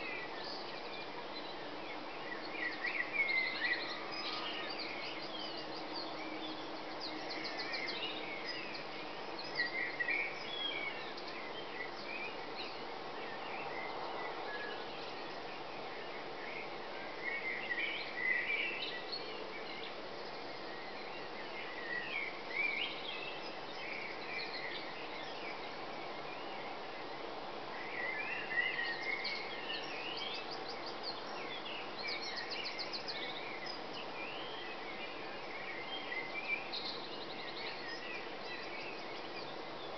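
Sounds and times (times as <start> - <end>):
birds singing: 0.0 - 39.9
steady background noise: 0.0 - 39.9.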